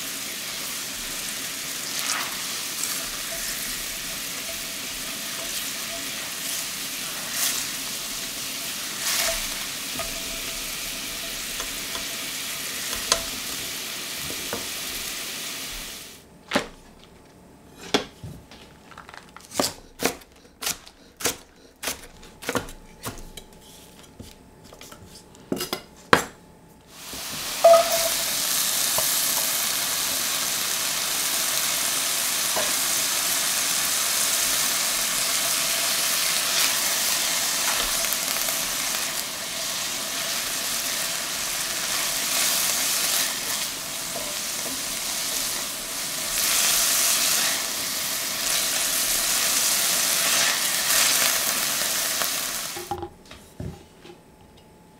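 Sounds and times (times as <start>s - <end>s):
hot fat sizzling in a pan: 0.0s - 16.2s, 26.9s - 52.8s
spatula stirring in a pan: 1.8s - 12.3s.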